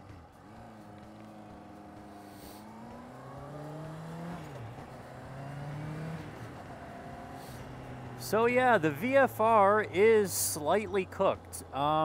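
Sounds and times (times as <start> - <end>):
motorcycle engine revving up: 0.4 - 9.3.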